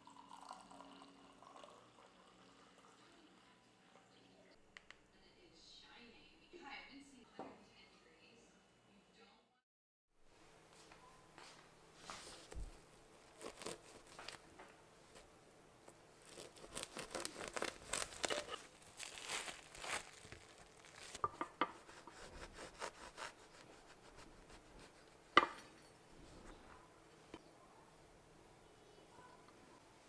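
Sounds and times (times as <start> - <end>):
plastic wrap crinkling: 13.2 - 14.5, 16.2 - 21.3
serrated knife sawing bread: 21.7 - 25.2.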